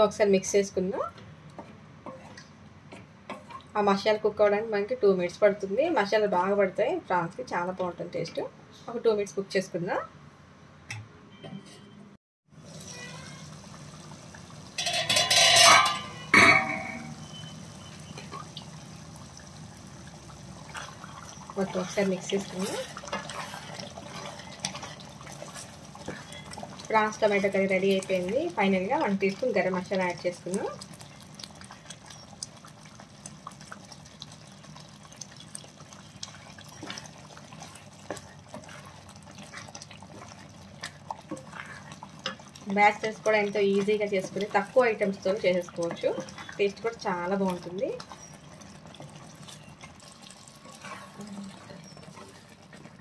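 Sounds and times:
curry bubbling: 12.6s - 53.0s
low steady hum: 14.3s - 32.5s.

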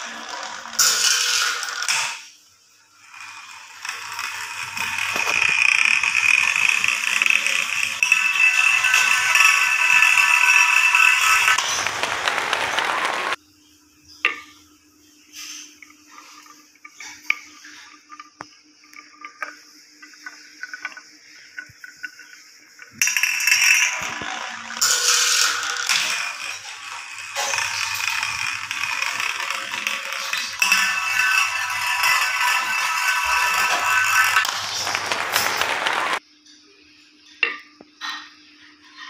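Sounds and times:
glass marbles rolling on wood: 0.0s - 2.2s, 3.2s - 13.4s, 19.0s - 36.2s
loud music: 33.3s - 36.2s.

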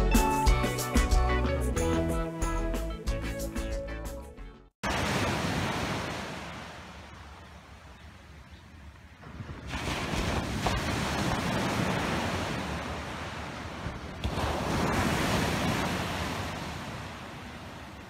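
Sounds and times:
waves washing up a beach: 4.8s - 8.5s, 9.2s - 18.0s.

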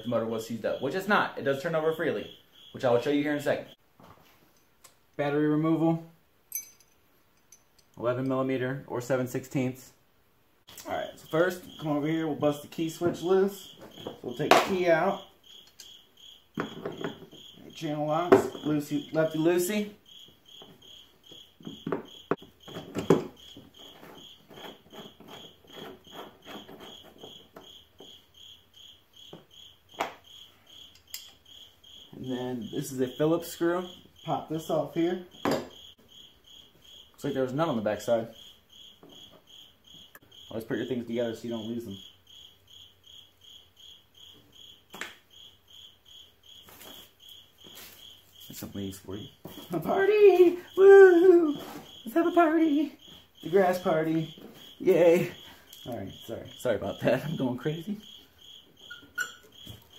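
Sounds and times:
cricket chirping: 0.0s - 59.9s
pliers clicking and scraping: 30.9s - 31.4s.

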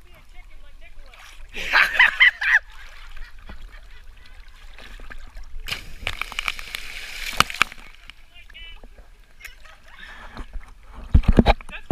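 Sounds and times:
water spraying and slapping: 2.8s - 8.1s
person splashing into river: 4.7s - 8.1s.

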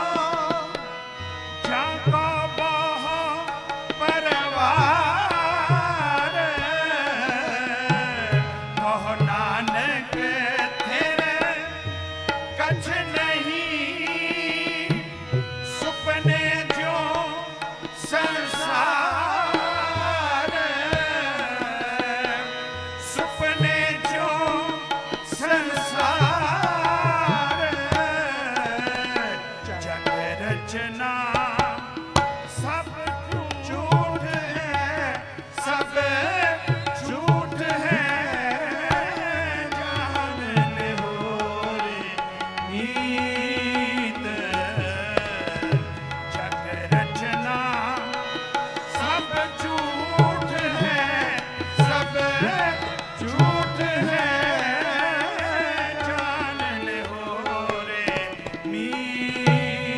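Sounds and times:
harmonium: 0.0s - 59.9s
man singing: 0.0s - 59.9s
tabla strokes: 14.0s - 59.9s.

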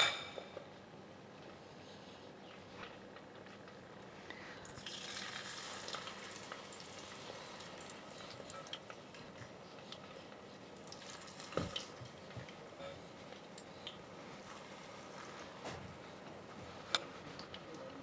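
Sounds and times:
oil sizzling in deep fryer: 4.6s - 9.2s, 10.8s - 12.3s.

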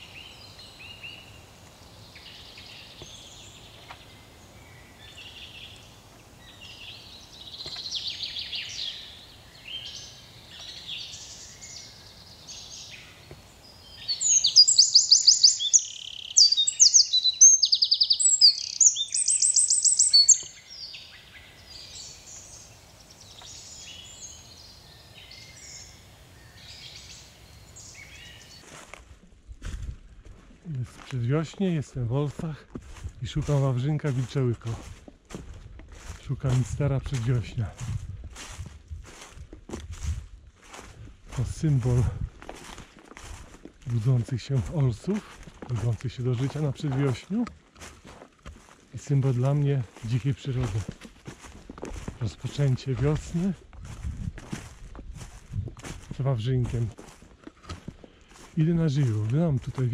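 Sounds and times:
bird song of fast high trills: 0.0s - 28.6s
songbirds singing and calling: 0.0s - 28.8s, 30.5s - 59.9s.

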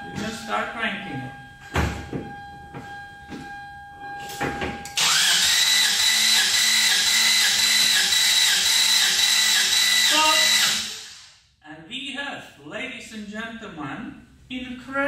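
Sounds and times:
starter motor cranking engine: 5.0s - 11.3s.

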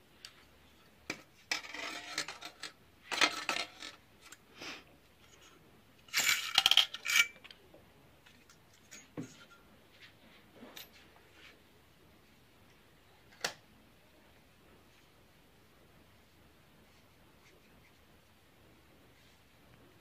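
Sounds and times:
knitting machine metal clinking: 6.1s - 7.4s.

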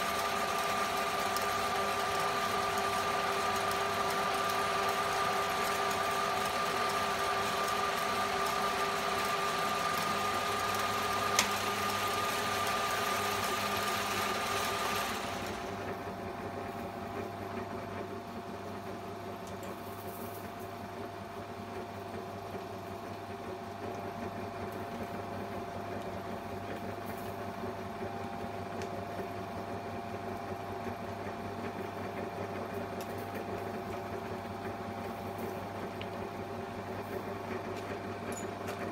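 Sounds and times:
metal lathe whining: 0.0s - 16.0s
steady machine hum: 0.0s - 38.9s.

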